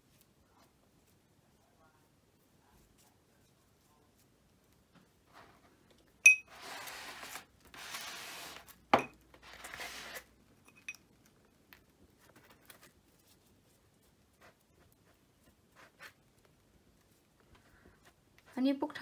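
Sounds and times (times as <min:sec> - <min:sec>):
rustling scrapes: 0:05.2 - 0:10.4
ringing clink: 0:06.2 - 0:06.4.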